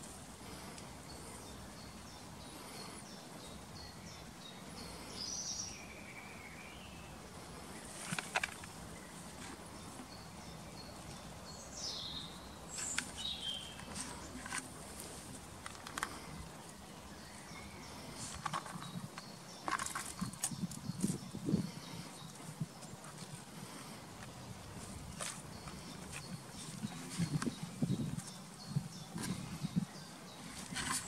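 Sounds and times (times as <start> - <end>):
outdoor hiss: 0.0 - 18.6
birds chirping: 0.0 - 31.0
sharp clicks or rustles: 8.0 - 8.8, 12.7 - 14.7.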